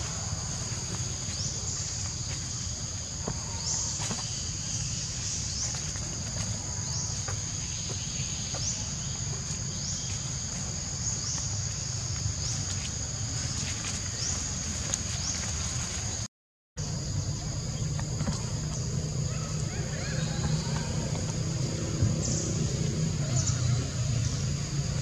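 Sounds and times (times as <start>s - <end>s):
cicadas buzzing: 16.8s - 25.0s
low rumble: 16.8s - 25.0s.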